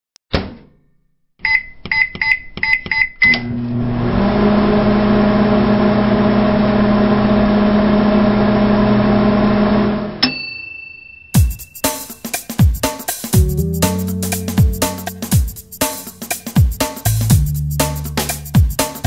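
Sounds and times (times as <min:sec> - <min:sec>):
microwave keypad beeps: 0:01.4 - 0:03.4
microwave oven humming: 0:03.4 - 0:10.2.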